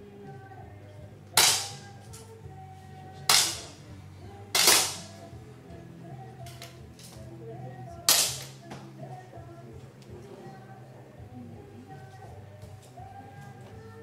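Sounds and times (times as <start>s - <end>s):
quiet background music: 0.0s - 14.0s
air pistol shots: 1.4s - 1.8s, 3.3s - 3.7s, 4.6s - 5.1s, 8.1s - 8.6s.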